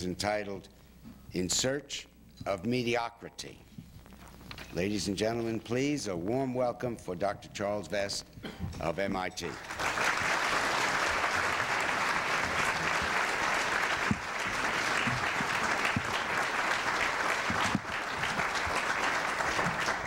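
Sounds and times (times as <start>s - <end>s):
audience applauding: 9.5s - 20.0s.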